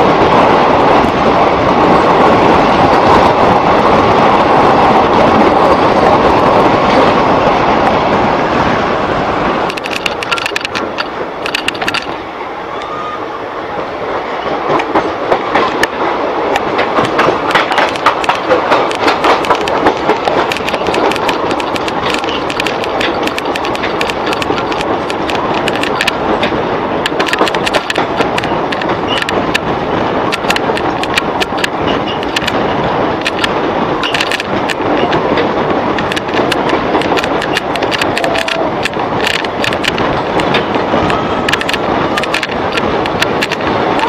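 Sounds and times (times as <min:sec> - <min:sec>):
train wheels rumbling on track: 0:00.0 - 0:44.0
sharp clicks and rattles: 0:09.6 - 0:12.2, 0:14.7 - 0:44.0.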